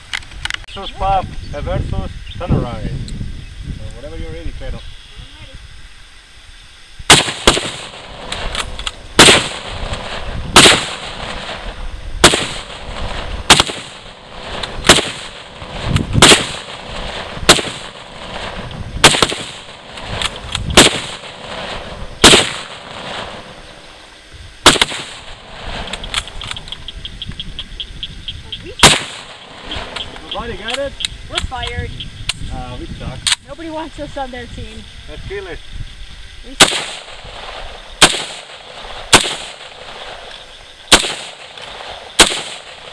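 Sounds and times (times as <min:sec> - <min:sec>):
gunshots with echo: 0:07.1 - 0:08.6, 0:09.2 - 0:11.6, 0:12.2 - 0:23.5, 0:24.6 - 0:26.2, 0:28.8 - 0:30.0, 0:36.6 - 0:37.2, 0:38.0 - 0:40.2, 0:40.9 - 0:42.9.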